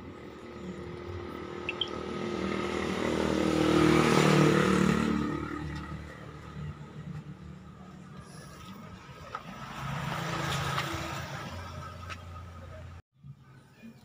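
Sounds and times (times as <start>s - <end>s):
vehicle engine passing by: 0.0s - 13.0s.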